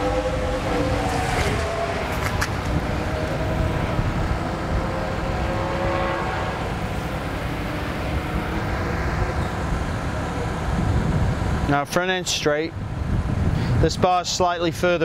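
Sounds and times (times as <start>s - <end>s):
faint engine drone: 0.0s - 13.8s
motorcycle engines rumbling: 0.0s - 15.0s.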